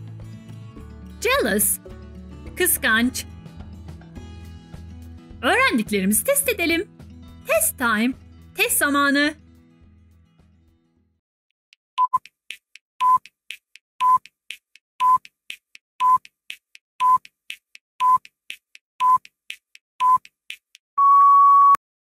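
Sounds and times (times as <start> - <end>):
short beeps: 21.0 - 21.8.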